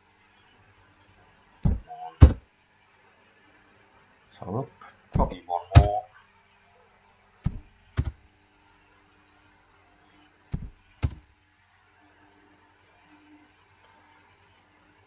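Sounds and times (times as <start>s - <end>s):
keyboard keys thumping: 1.7s - 2.4s, 5.2s - 6.0s, 7.5s - 8.2s, 10.6s - 11.2s.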